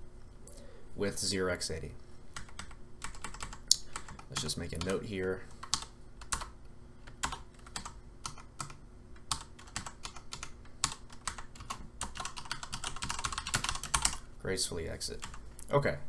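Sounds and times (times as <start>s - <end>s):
typing on computer keyboard: 2.4s - 5.0s, 5.6s - 6.5s, 7.1s - 14.2s.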